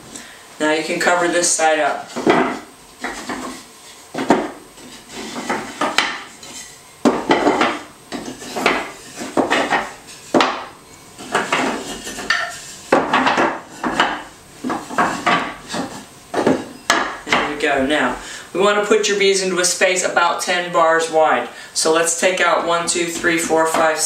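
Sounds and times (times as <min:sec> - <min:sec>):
wooden bars knocking together: 0:02.1 - 0:03.6, 0:04.2 - 0:04.6, 0:05.2 - 0:17.6.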